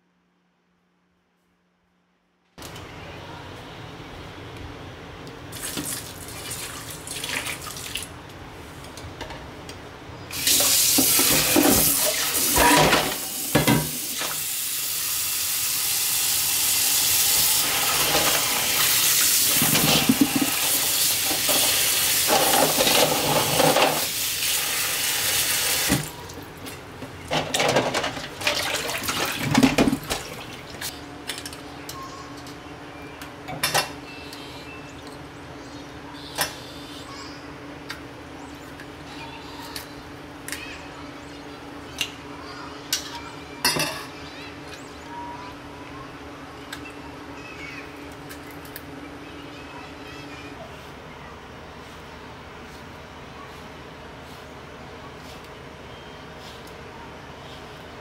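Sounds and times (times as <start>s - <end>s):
water running into metal bowl: 15.4s - 26.1s.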